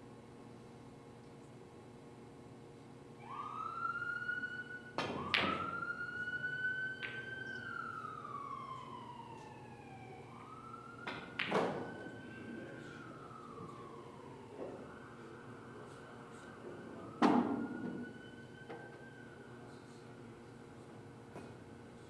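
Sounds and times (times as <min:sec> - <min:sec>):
emergency vehicle siren wailing: 0:03.2 - 0:20.1.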